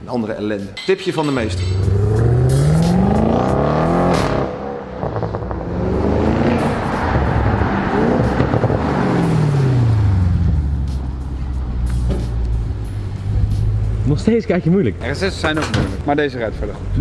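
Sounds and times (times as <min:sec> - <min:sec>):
car engine accelerating hard: 0:01.9 - 0:11.6.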